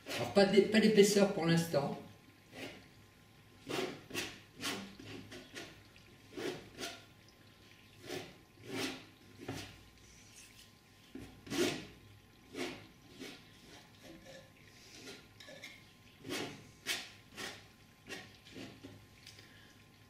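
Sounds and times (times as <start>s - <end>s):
painting knife scraping canvas: 16.2s - 18.8s.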